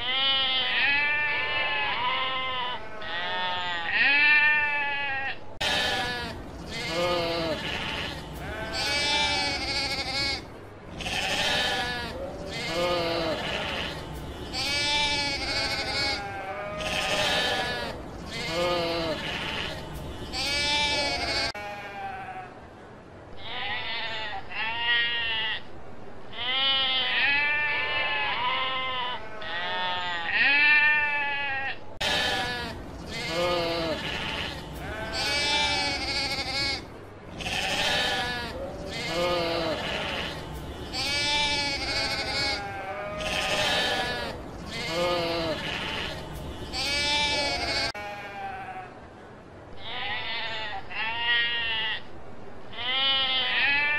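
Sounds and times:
sheep bleating: 0:00.0 - 0:22.5, 0:26.4 - 0:48.9.

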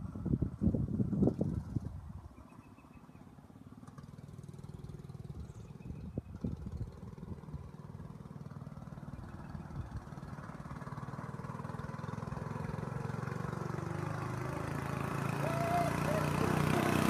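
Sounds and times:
small engine running: 0:03.4 - 0:17.0.

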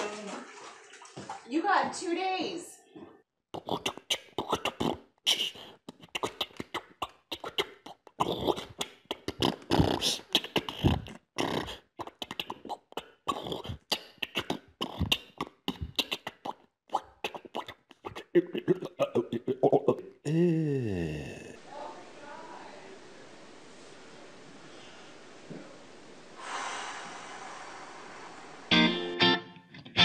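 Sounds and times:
beatboxing: 0:03.5 - 0:21.5.

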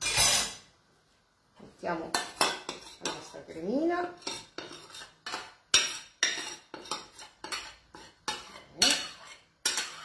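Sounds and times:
cutlery clinking on ceramic: 0:04.2 - 0:10.0.

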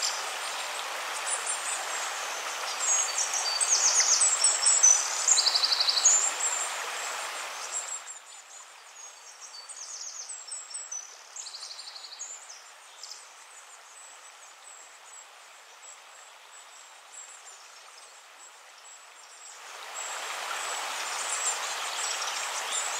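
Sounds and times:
running water hiss: 0:00.0 - 0:22.9.

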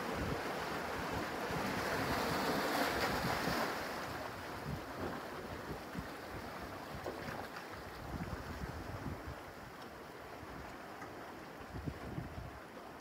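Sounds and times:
waves washing over rocks: 0:00.0 - 0:07.4
wind buffeting microphone: 0:08.0 - 0:09.4, 0:11.7 - 0:12.6.

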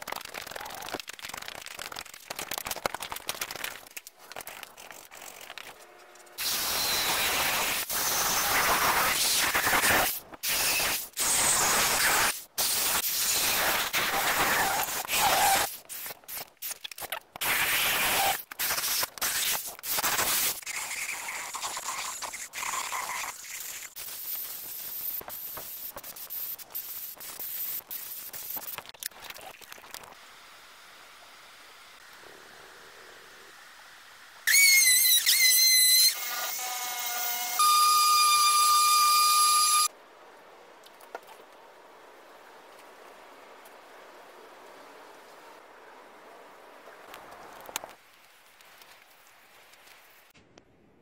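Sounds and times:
drill boring through wood: 0:34.5 - 0:39.9
wood router whining: 0:35.1 - 0:39.9.

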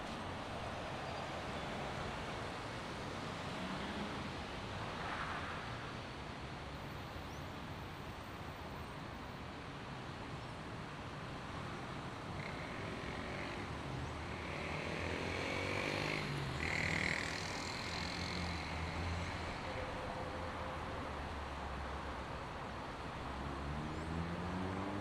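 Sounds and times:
tyres hissing on wet road: 0:02.8 - 0:05.9.

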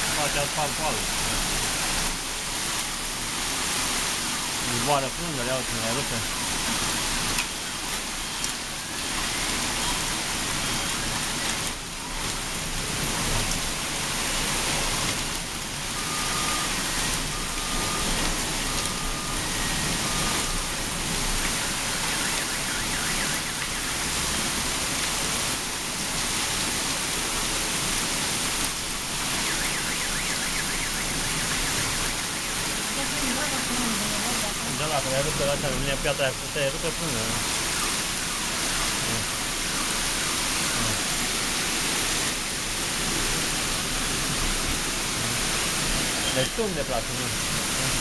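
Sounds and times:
heavy rain and hail pelting: 0:00.0 - 0:48.0
faint short beeps: 0:46.2 - 0:46.6.

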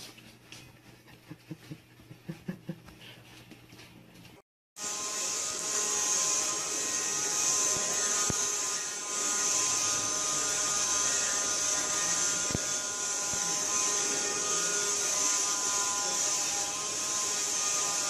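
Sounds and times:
handheld vacuum cleaner whining: 0:04.8 - 0:18.0.

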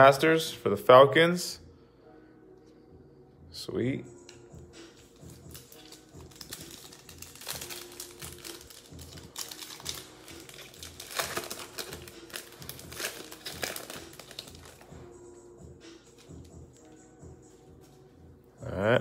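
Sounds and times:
card pack wrapper crinkling: 0:05.2 - 0:14.9.

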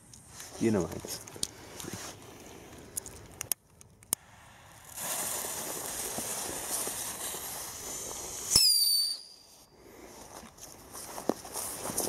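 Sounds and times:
rocket hissing: 0:04.1 - 0:09.7
firework bang: 0:04.2 - 0:07.7
high whistle: 0:08.5 - 0:09.6.

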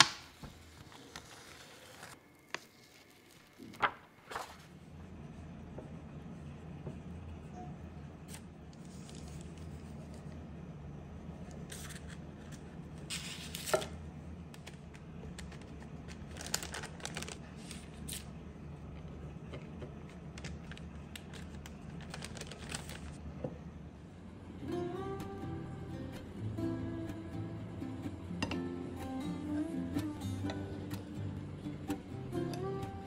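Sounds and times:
parchment paper rustling: 0:00.0 - 0:04.9, 0:08.3 - 0:10.4, 0:11.5 - 0:18.3, 0:19.0 - 0:23.2
steady low hum: 0:00.0 - 0:33.0.

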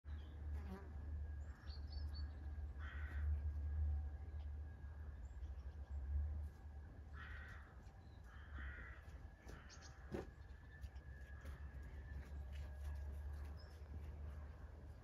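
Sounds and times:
small birds chirping: 0:01.3 - 0:03.3, 0:07.2 - 0:12.2, 0:13.3 - 0:15.0
hoarse caw: 0:02.8 - 0:03.4, 0:07.1 - 0:10.3.

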